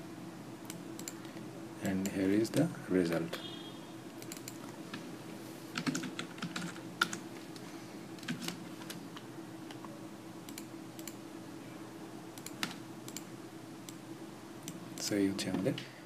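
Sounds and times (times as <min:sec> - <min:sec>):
low steady hum: 0:00.0 - 0:16.0
keyboard typing: 0:00.7 - 0:02.2, 0:04.2 - 0:05.0, 0:05.8 - 0:07.6, 0:08.2 - 0:09.0, 0:12.4 - 0:13.3.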